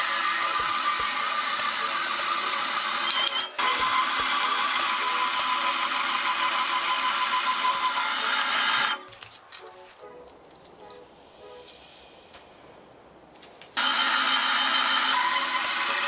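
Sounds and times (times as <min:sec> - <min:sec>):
band saw cutting steel: 0:00.0 - 0:09.1, 0:13.8 - 0:16.0.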